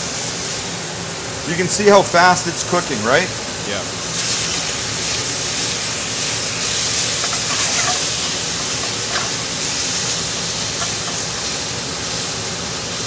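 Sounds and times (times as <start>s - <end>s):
beef sizzling in a wok: 3.9s - 13.0s.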